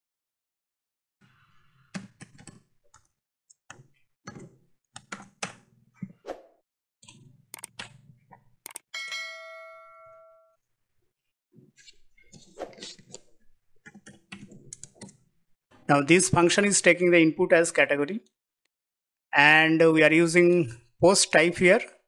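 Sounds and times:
keyboard key clicks: 7.6 - 8.0
bell-like ding chime: 8.9 - 10.6.

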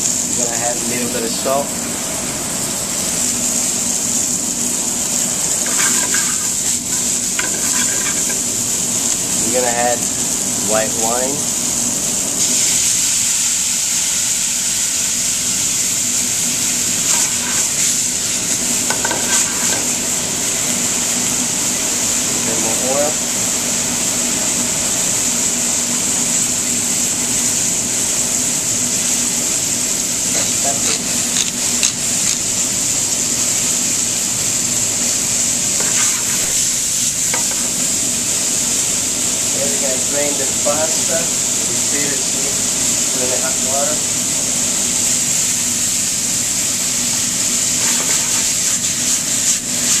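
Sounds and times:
vegetables sizzling in pan: 0.0 - 50.0.

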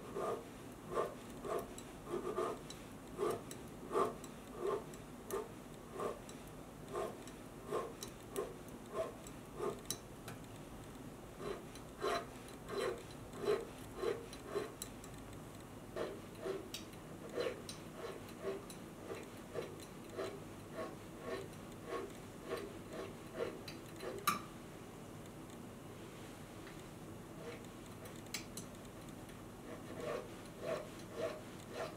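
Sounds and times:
needle file rasping on metal: 0.0 - 9.9, 11.4 - 14.9, 16.0 - 24.2, 29.6 - 31.9.

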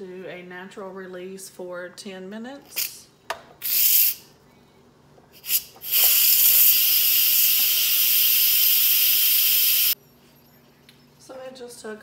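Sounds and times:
steam hissing from pressure valve: 3.6 - 4.2, 5.4 - 10.0.

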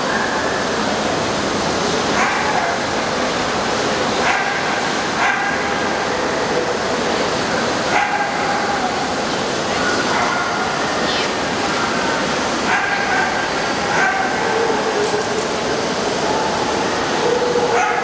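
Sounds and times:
dogs barking and yelping: 7.9 - 8.9, 12.6 - 15.5, 16.2 - 18.0.

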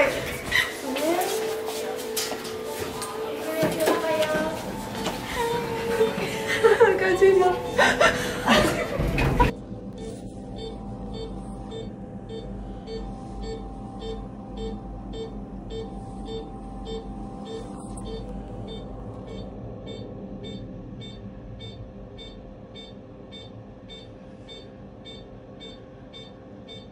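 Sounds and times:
steady low hum: 0.0 - 26.9
electronic beeping pips: 9.9 - 26.9.

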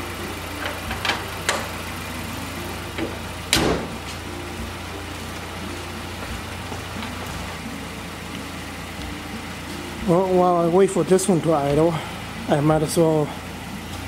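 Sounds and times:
car engine idling: 0.0 - 14.0
car hood slammed shut: 3.0 - 4.0.

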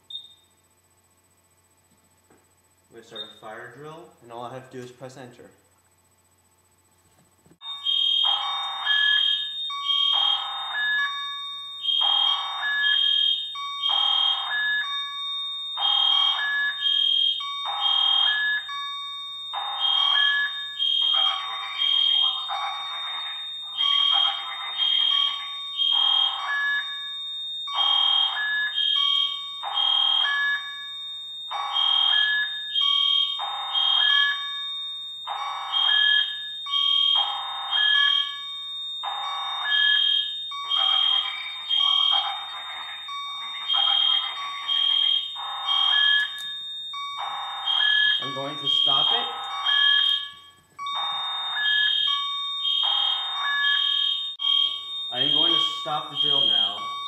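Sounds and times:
fire alarm pulsing: 0.0 - 7.0, 7.6 - 57.0
steady high tone: 37.6 - 57.0.

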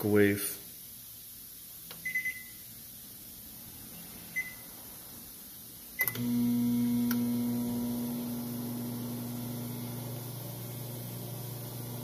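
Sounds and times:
microwave keypad beeps: 2.0 - 2.6, 4.4 - 4.6
microwave oven humming: 6.0 - 12.0.

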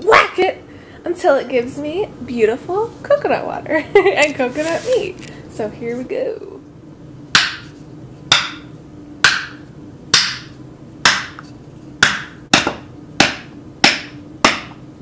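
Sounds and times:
mallet knocking metal punch: 7.3 - 7.7, 8.3 - 11.4, 12.0 - 14.8.

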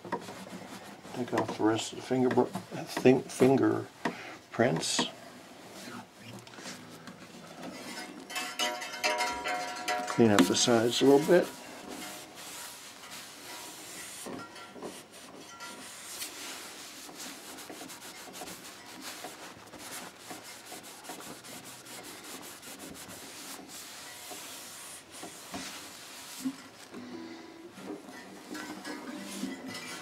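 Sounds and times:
cloth rubbing on wood: 10.3 - 26.9.

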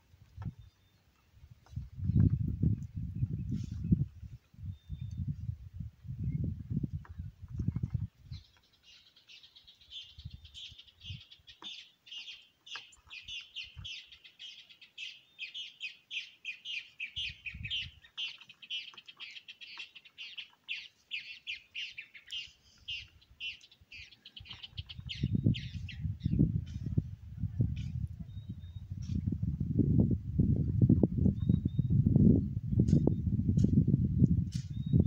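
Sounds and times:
songbird chirping: 0.4 - 5.5, 6.1 - 27.0.

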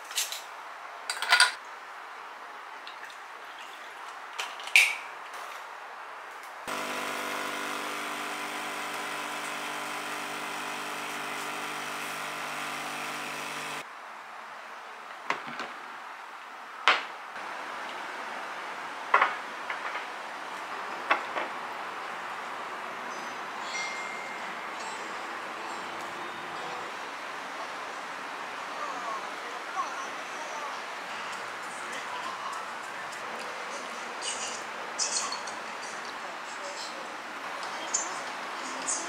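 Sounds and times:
espresso machine pump humming: 6.7 - 13.8
glass clink: 23.6 - 25.2.

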